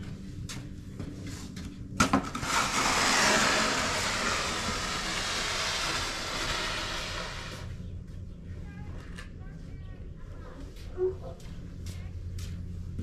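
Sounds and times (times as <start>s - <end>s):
loud rushing noise: 2.4s - 7.7s.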